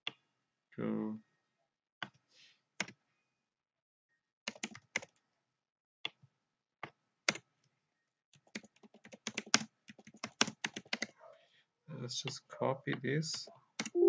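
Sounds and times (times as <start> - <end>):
computer keyboard typing: 4.5 - 5.1, 8.4 - 11.1.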